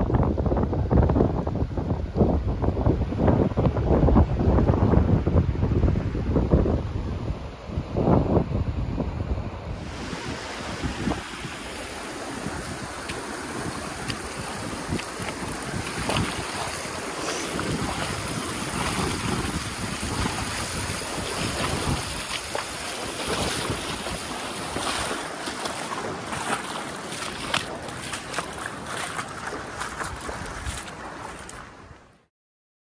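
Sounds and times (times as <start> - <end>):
wind buffeting microphone: 0.0 - 32.0
creek running over rocks: 9.8 - 32.0.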